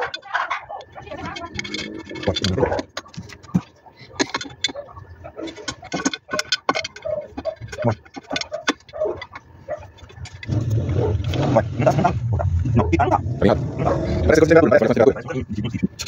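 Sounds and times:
hand tools clinking on metal: 0.0s - 10.5s
loud low hum: 10.0s - 15.9s.

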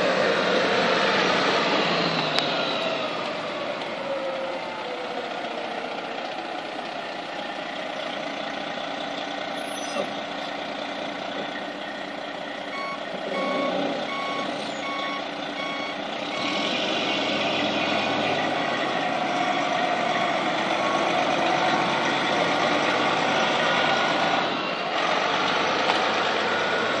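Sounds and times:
truck diesel engine running: 0.0s - 27.0s
reversing alarm beeping: 11.5s - 16.7s.

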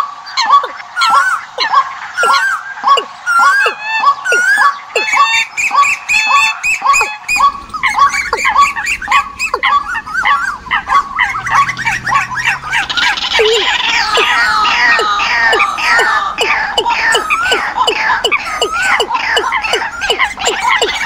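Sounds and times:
recorded bird calls: 0.0s - 21.0s.

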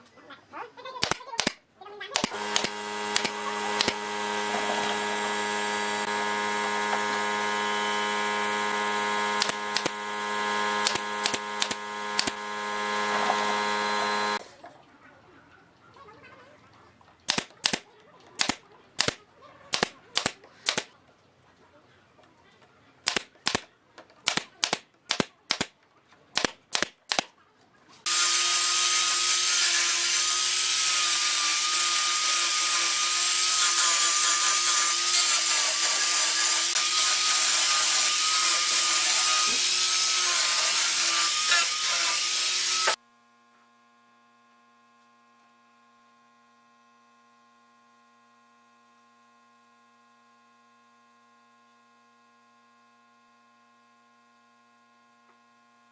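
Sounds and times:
brad nailer firing: 1.0s - 1.6s, 2.2s - 14.4s, 17.3s - 17.8s, 18.4s - 20.9s, 23.0s - 25.7s, 26.4s - 27.3s, 28.1s - 43.0s
angle grinder sanding wood: 2.2s - 14.4s, 28.1s - 43.0s.

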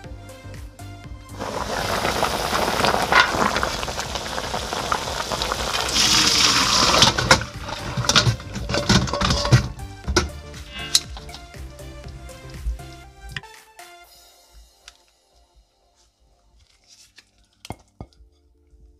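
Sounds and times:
broth bubbling: 1.4s - 9.7s
liquid splashing into colander: 1.4s - 10.3s
bones clattering against metal: 6.1s - 11.5s.

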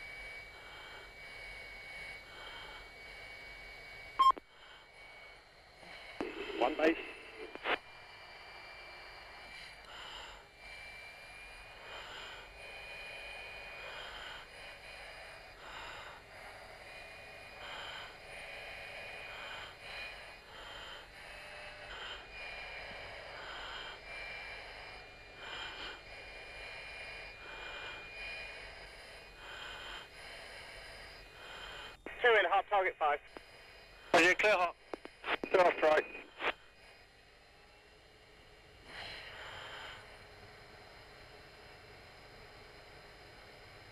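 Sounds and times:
steady high tone: 0.0s - 37.8s
breathing through oxygen mask: 13.7s - 16.6s, 17.5s - 24.7s, 25.3s - 28.6s, 29.4s - 30.6s, 31.3s - 32.1s, 38.8s - 40.2s.

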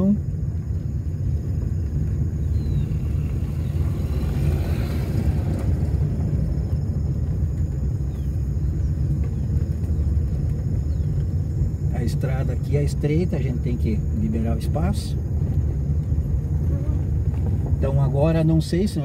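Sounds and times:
car rumbling on gravel road: 0.0s - 19.0s
passing car hiss: 2.8s - 6.7s.

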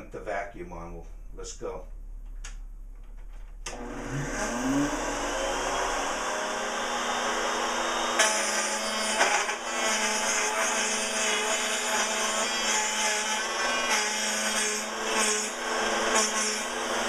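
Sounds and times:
router motor whine: 3.7s - 10.6s
router bit cutting wood: 3.7s - 17.0s.

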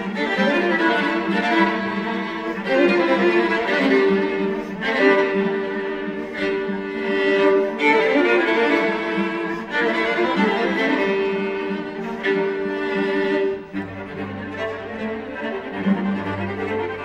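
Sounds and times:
string quartet playing: 0.0s - 17.0s.

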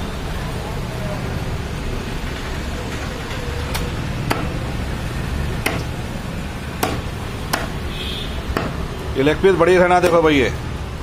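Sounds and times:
cleaver chopping on wood: 4.3s - 4.5s, 5.6s - 5.9s, 6.8s - 7.8s, 8.5s - 8.8s.

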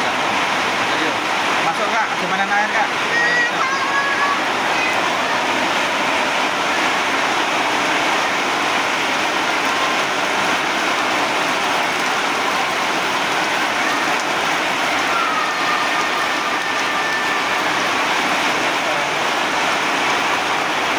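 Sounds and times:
steady rain falling: 0.0s - 20.9s.

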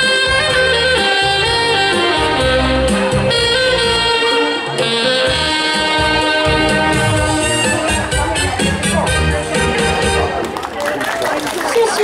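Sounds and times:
low bass line: 0.0s - 10.4s
saxophone ensemble playing folk melody: 0.0s - 10.6s.

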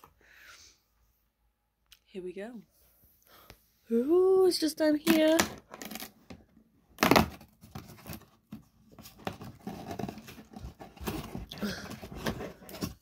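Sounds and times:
cardboard rustling and scraping: 7.0s - 13.0s.

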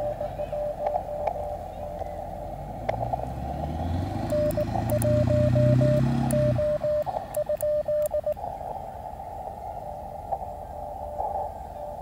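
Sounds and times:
morse code tone: 0.0s - 2.5s, 4.2s - 8.4s
radio hiss: 0.0s - 2.9s, 6.7s - 12.0s.

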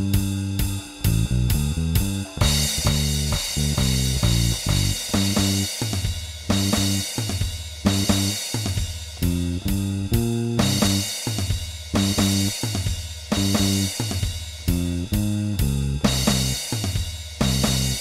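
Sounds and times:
electric bass line: 0.0s - 5.7s, 6.5s - 7.1s, 7.9s - 8.4s, 9.2s - 11.2s, 11.9s - 12.6s, 13.3s - 14.0s, 14.6s - 16.7s, 17.4s - 18.0s
drum kit: 0.0s - 18.0s
cymbal crashes: 0.1s - 9.3s.

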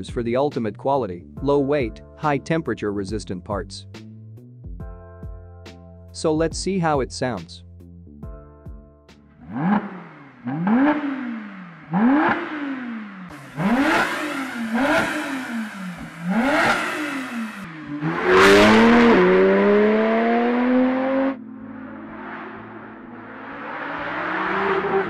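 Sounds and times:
car accelerating hard: 9.4s - 25.0s
car engine revving: 9.4s - 25.0s.

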